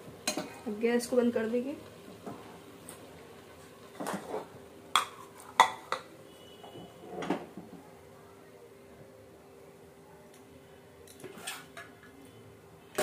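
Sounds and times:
metal utensils clanking on pans: 0:00.2 - 0:00.6, 0:03.9 - 0:06.1, 0:11.1 - 0:12.0.

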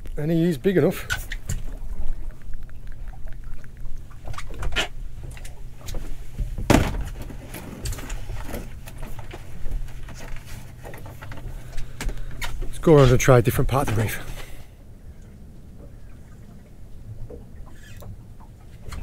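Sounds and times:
water sloshing: 0:00.0 - 0:19.0
knocks and clatter on boat: 0:00.9 - 0:14.3.

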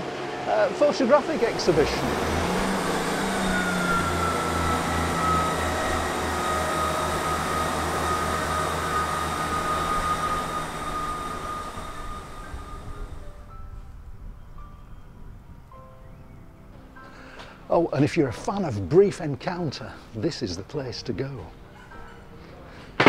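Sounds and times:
diesel train engine throbbing: 0:00.0 - 0:14.9
high whine: 0:00.0 - 0:16.0.

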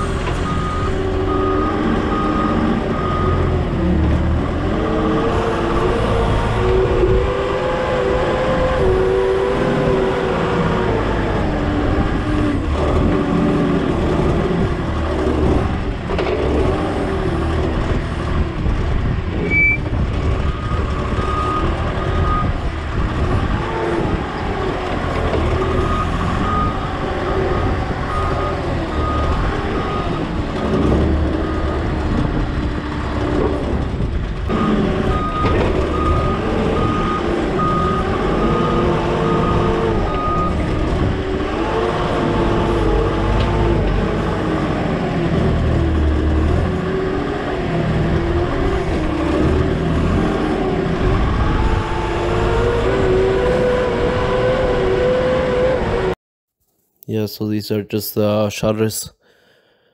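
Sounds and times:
reversing beeper beeps: 0:00.0 - 0:03.5, 0:19.4 - 0:22.5
forklift engine revving: 0:00.0 - 0:56.2.

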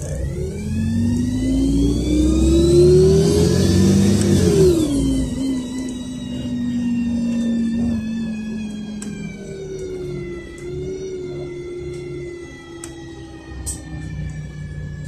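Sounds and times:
bus engine rumble: 0:00.0 - 0:15.0
drivetrain whine: 0:00.0 - 0:15.0.

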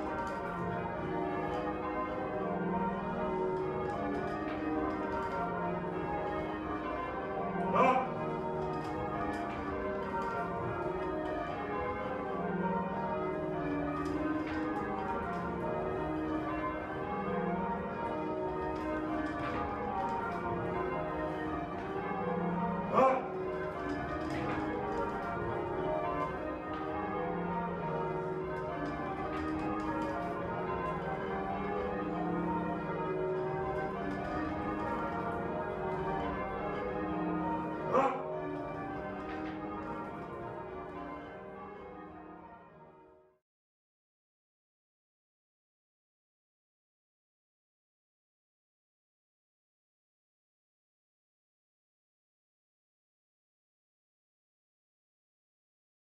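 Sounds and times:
church bells ringing changes: 0:00.0 - 0:43.2.

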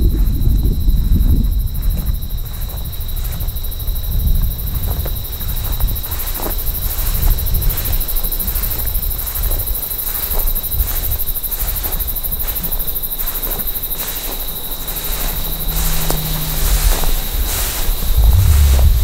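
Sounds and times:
insects trilling: 0:00.0 - 0:19.0
thin steady whine: 0:13.7 - 0:19.0
low microphone rumble: 0:14.4 - 0:19.0.

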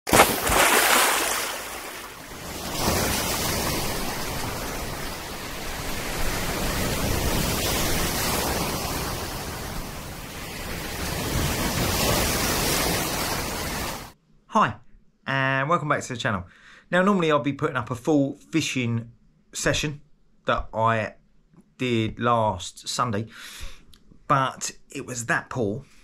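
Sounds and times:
sea waves breaking: 0:00.1 - 0:14.2.

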